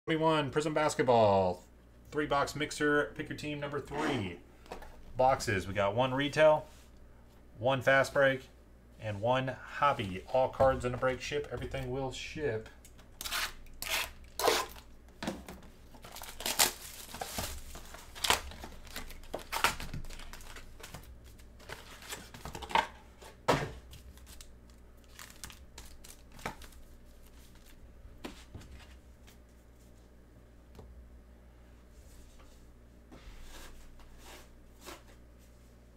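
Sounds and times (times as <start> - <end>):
foil packs crinkling: 15.9 - 22.7, 24.0 - 27.8.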